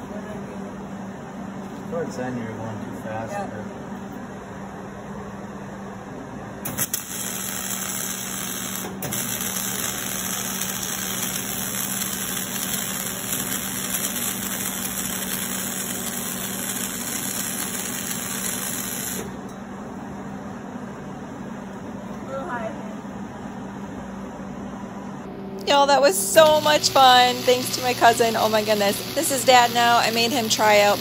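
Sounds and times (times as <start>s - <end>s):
steady low hum: 0.0s - 31.0s
welding arc crackling: 6.7s - 19.4s, 25.6s - 31.0s.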